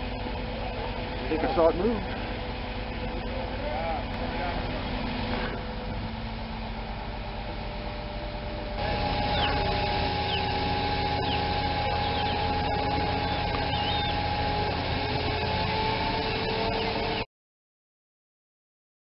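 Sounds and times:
heavy machinery engine whining: 0:00.0 - 0:17.3
short high chirps: 0:11.1 - 0:14.2.

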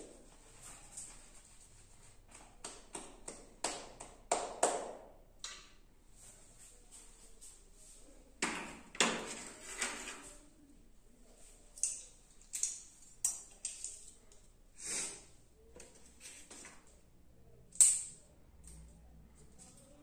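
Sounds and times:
scrape: 0:09.3 - 0:10.4, 0:14.8 - 0:15.3.

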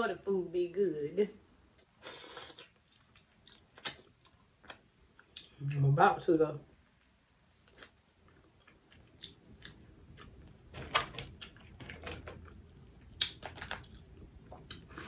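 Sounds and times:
close-up chewing: 0:07.6 - 0:10.6, 0:11.3 - 0:15.0
shells crackling and snapping: 0:08.7 - 0:14.8.

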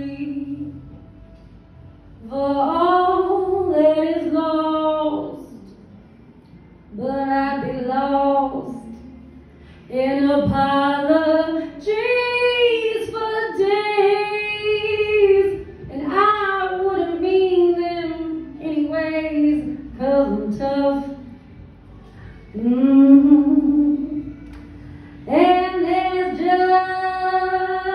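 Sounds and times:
woman singing a cappella: 0:00.0 - 0:01.0, 0:02.2 - 0:05.8, 0:06.9 - 0:09.3, 0:09.9 - 0:21.4, 0:22.2 - 0:27.9.

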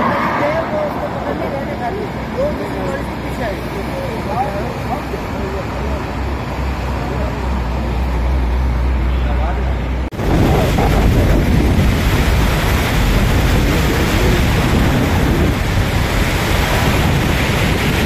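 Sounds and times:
rushing river floodwater: 0:00.0 - 0:18.0
wind buffeting microphone: 0:10.1 - 0:18.0.

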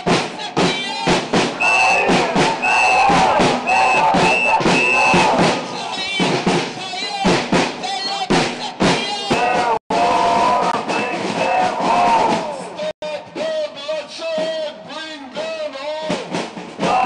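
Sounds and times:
crowd chanting in rhythm: 0:00.0 - 0:13.0, 0:16.8 - 0:17.0
drumbeats: 0:00.0 - 0:17.0.

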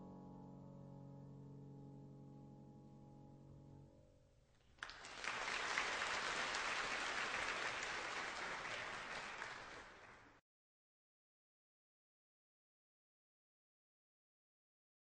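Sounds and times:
soft music: 0:00.0 - 0:04.6
audience applause: 0:04.8 - 0:10.4.

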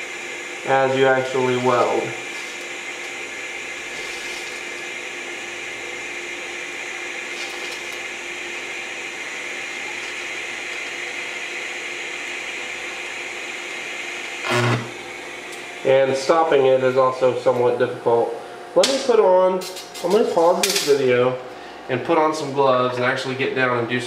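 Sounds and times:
welding arc hissing: 0:00.0 - 0:16.3.

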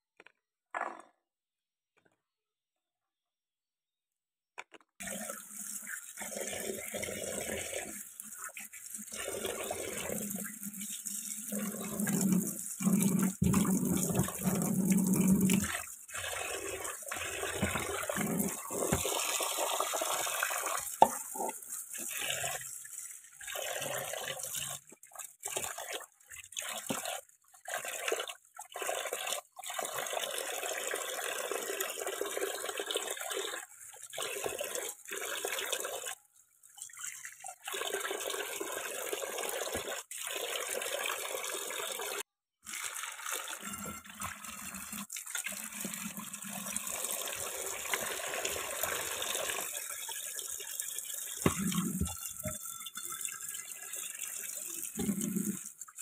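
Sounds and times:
tap water into steel sink: 0:51.4 - 0:53.7.

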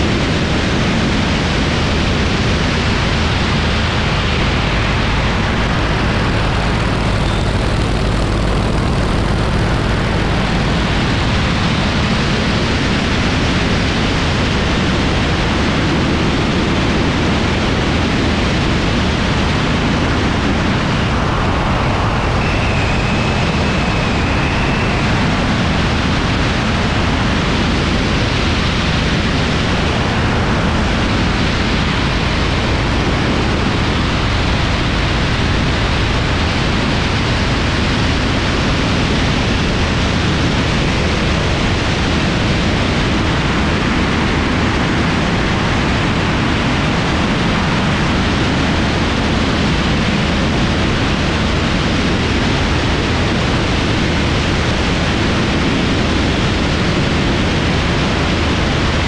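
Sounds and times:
radial aircraft engine running: 0:00.0 - 0:59.0
wind rushing over microphone: 0:00.0 - 0:59.0.

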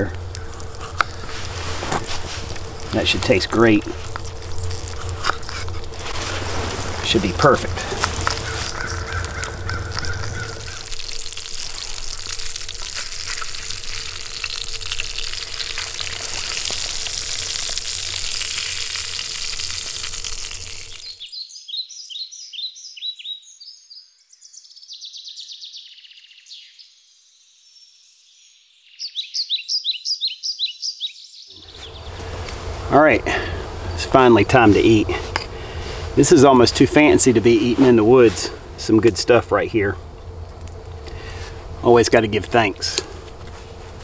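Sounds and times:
birds chirping: 0:00.0 - 0:27.0, 0:27.6 - 0:44.0
fish sizzling in a skillet: 0:00.4 - 0:07.1, 0:07.7 - 0:21.2.

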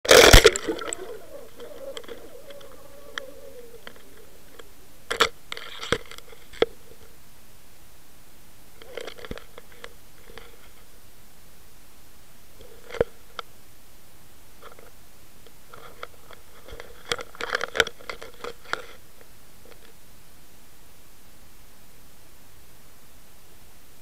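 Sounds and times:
underwater gurgle: 0:00.0 - 0:05.9
camera splashing into water: 0:00.1 - 0:02.6.

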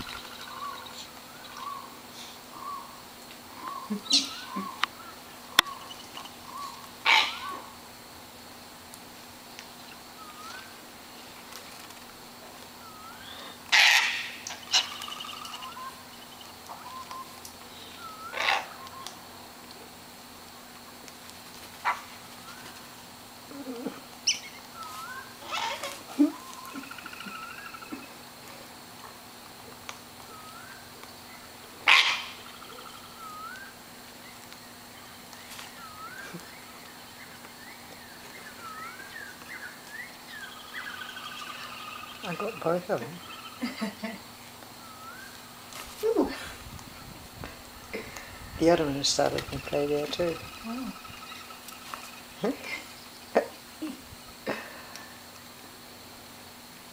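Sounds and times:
gliding bird call: 0:03.6 - 0:07.8, 0:12.8 - 0:19.2, 0:23.5 - 0:28.2, 0:31.8 - 0:33.8, 0:37.7 - 0:42.6
cockatoo screech: 0:07.0 - 0:07.6, 0:25.0 - 0:26.0
soft whistled bird notes: 0:09.8 - 0:10.8, 0:12.8 - 0:13.6, 0:14.6 - 0:19.2, 0:24.2 - 0:25.4, 0:30.2 - 0:31.5, 0:32.4 - 0:34.7, 0:35.4 - 0:43.6, 0:44.8 - 0:45.4.

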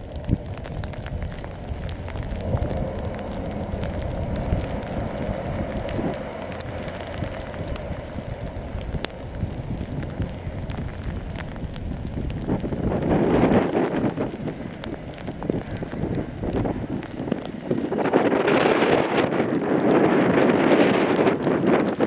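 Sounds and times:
raindrop ticks: 0:00.0 - 0:22.0
wind on microphone: 0:00.0 - 0:22.0
distant train hum: 0:00.9 - 0:11.8.

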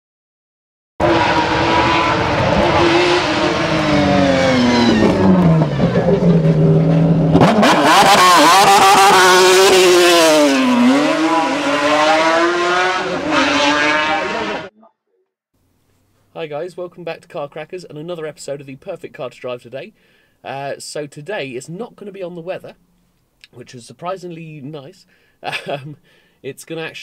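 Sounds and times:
racing car engine revving: 0:01.0 - 0:14.7.

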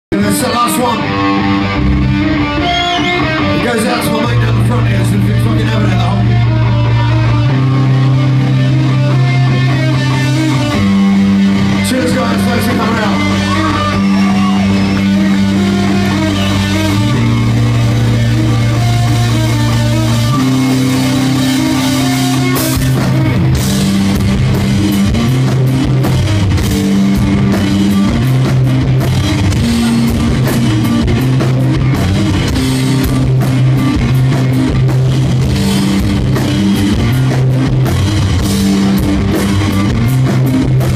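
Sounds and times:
bass guitar chords: 0:00.1 - 0:40.9
distorted electric guitar: 0:00.1 - 0:40.9
drums and cymbals: 0:09.3 - 0:40.9.

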